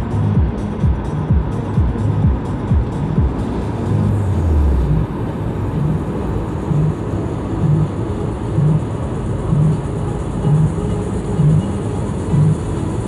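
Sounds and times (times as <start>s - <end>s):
low pulse: 0.0s - 12.9s
car road and engine noise: 0.0s - 13.0s
low falling tone: 3.1s - 7.0s.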